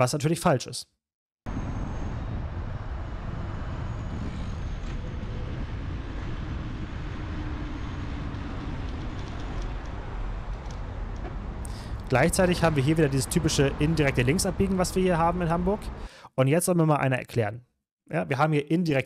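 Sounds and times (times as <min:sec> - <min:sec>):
wind rumble on microphone: 0:01.5 - 0:16.0
car traffic: 0:01.5 - 0:16.1.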